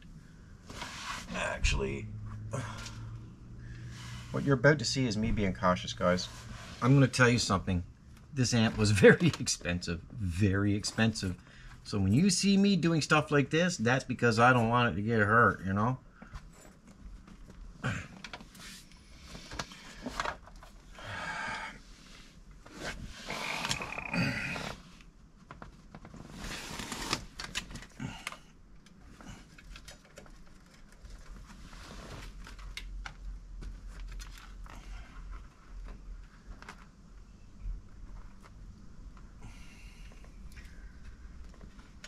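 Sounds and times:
faint low hum: 0.0s - 42.0s.

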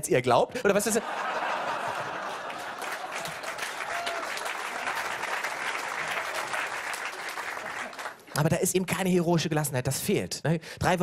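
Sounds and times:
audience applauding: 1.2s - 8.5s.

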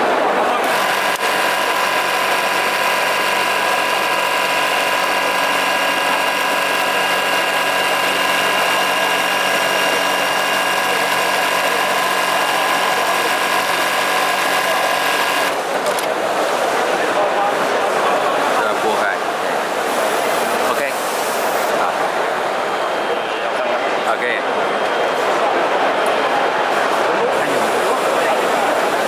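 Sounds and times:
sewing machine clatter and hum: 0.5s - 17.5s.

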